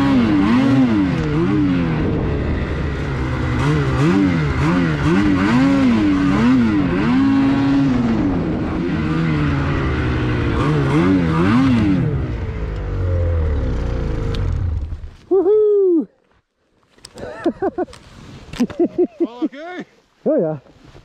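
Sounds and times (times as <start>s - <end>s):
snowmobile engine revving: 0.0s - 15.0s.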